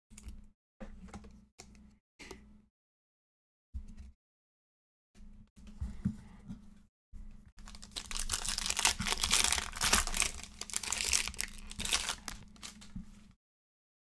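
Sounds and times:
wrapper crinkling and tearing: 0:07.6 - 0:12.8.

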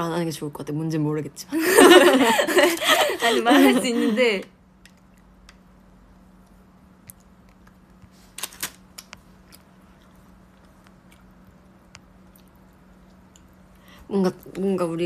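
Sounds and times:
steady low hum: 0:00.0 - 0:15.0
person chewing cookie: 0:09.2 - 0:13.9.

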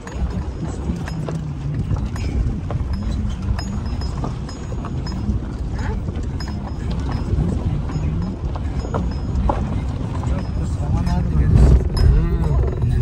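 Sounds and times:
engine and tyres rumbling: 0:00.0 - 0:13.0
knocks and rattles: 0:00.0 - 0:13.0.

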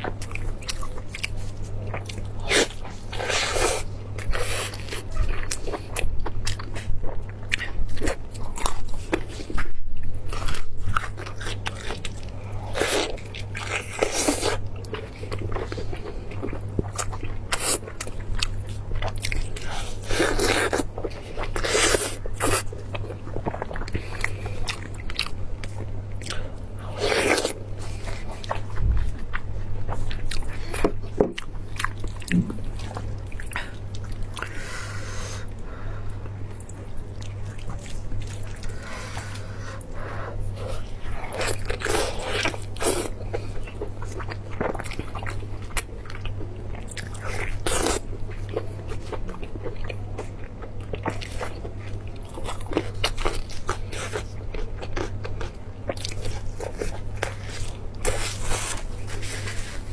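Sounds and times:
chewing and crunching meat: 0:00.0 - 0:59.9
low hum: 0:22.7 - 0:43.5.

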